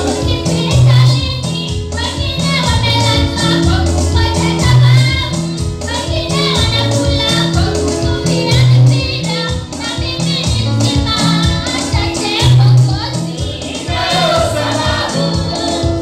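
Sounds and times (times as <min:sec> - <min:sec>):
woman singing: 0:00.0 - 0:16.0
backing singers: 0:13.4 - 0:16.0.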